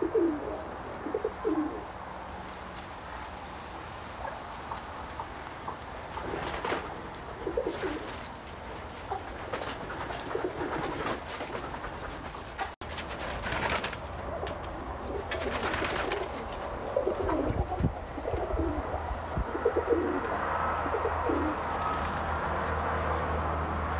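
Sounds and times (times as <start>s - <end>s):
pigeon cooing: 0.0s - 2.0s, 5.7s - 8.3s, 9.1s - 12.0s, 14.9s - 22.0s.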